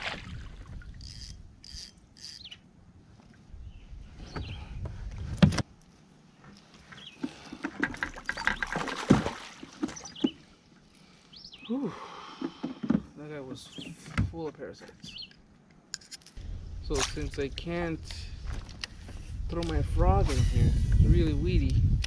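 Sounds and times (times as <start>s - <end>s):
low wind rumble: 0.0s - 5.8s, 16.4s - 22.0s.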